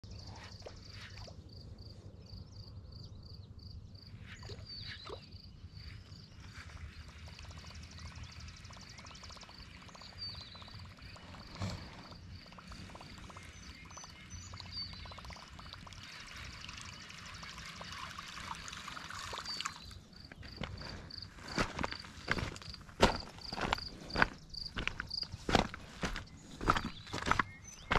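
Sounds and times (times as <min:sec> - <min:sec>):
high chirping: 0:04.1 - 0:18.2
lure gurgling and splashing: 0:07.2 - 0:20.0.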